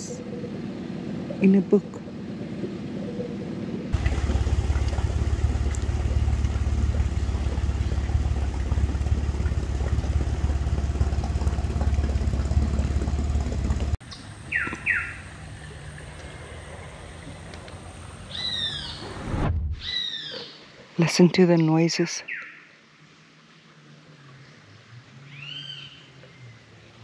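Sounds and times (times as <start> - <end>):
outboard motor running: 3.9 - 18.4.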